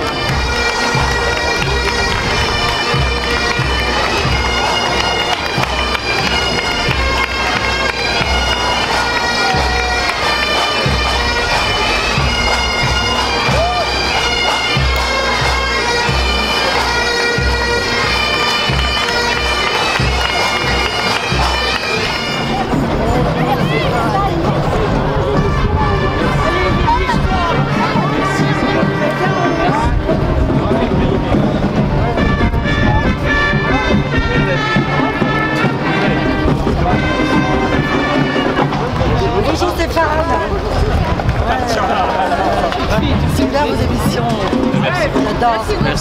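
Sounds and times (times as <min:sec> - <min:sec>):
bagpipes playing with drone: 0:00.0 - 0:40.7
low thuds: 0:09.6 - 0:15.9.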